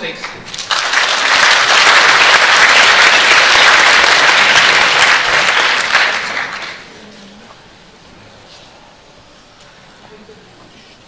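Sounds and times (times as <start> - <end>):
audience applauding: 0.2 - 6.9.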